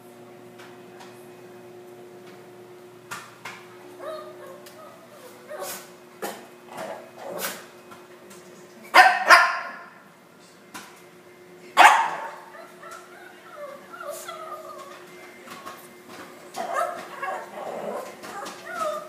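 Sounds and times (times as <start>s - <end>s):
microwave oven humming: 0.0s - 19.0s
dog barking: 8.9s - 9.9s, 11.8s - 12.8s
small dog whining and yipping: 12.5s - 15.0s, 18.3s - 19.0s.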